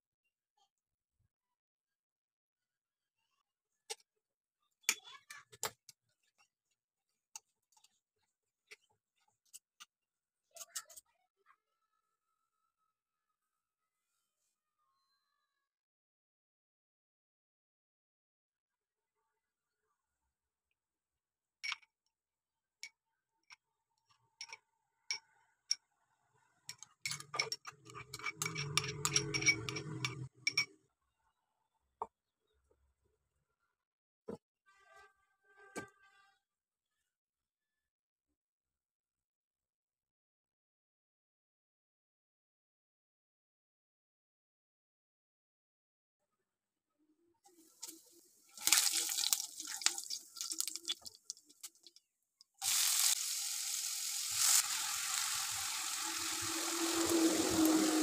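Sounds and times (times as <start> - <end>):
forks scraping ceramic plate: 26.7 - 30.7
metal spoon clinking glass bowl: 26.7 - 30.8.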